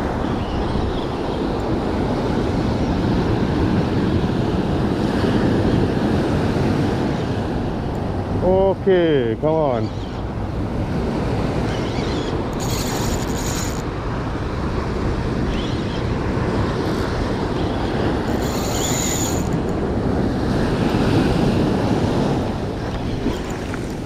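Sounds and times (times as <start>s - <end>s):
wind buffeting microphone: 10.0s - 24.0s
fishing reel buzzing: 11.8s - 13.9s, 17.6s - 19.8s
surf washing onto beach: 19.6s - 24.0s.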